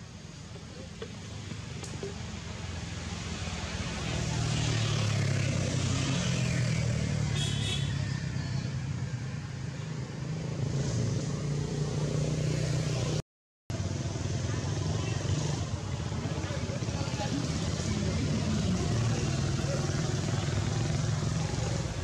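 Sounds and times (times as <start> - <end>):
vehicle engine humming: 0.0 - 13.1, 13.7 - 22.0.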